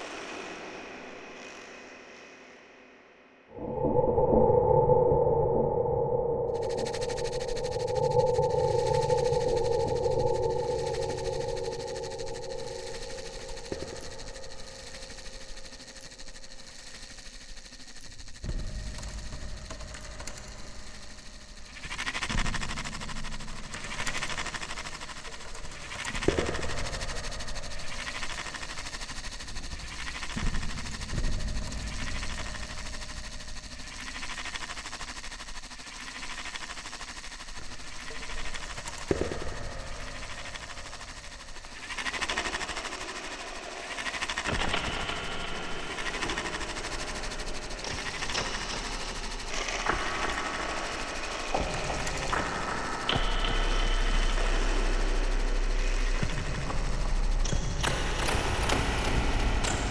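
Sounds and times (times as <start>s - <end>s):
noisy electronic drone music: 6.0s - 15.8s, 42.2s - 59.9s.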